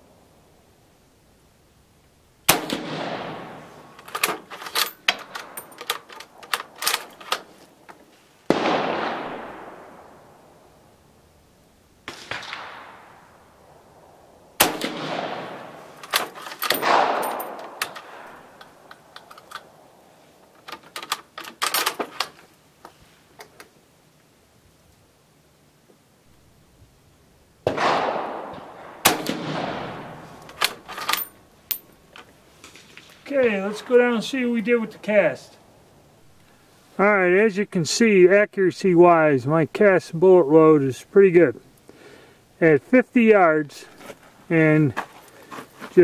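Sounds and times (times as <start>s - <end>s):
rifle shots with echo: 2.5s - 4.4s, 8.5s - 10.5s, 12.0s - 13.5s, 14.6s - 18.6s, 27.6s - 30.8s.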